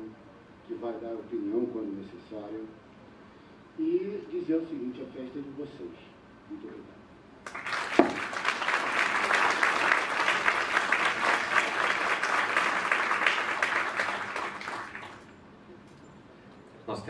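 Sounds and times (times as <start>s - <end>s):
audience applause: 7.5s - 15.3s.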